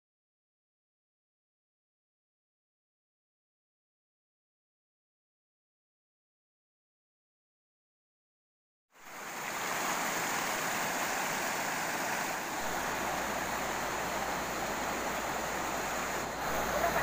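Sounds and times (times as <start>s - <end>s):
river water rushing over rocks: 9.0s - 17.0s.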